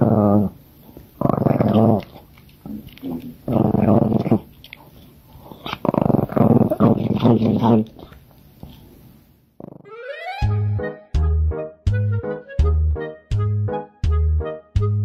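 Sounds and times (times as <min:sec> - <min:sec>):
small dog growling: 0:00.0 - 0:00.6, 0:01.2 - 0:04.6, 0:05.4 - 0:08.2, 0:09.6 - 0:09.9.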